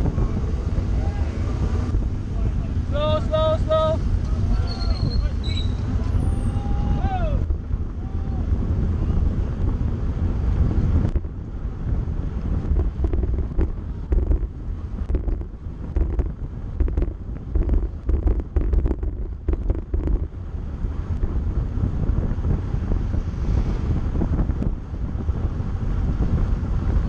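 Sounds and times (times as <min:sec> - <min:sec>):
wind buffeting microphone: 0:00.0 - 0:27.0
bike ticking and rattling: 0:07.4 - 0:27.0.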